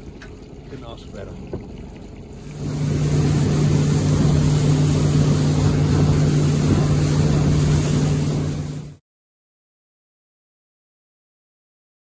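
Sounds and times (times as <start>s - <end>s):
small boat motor droning: 0.0s - 9.0s.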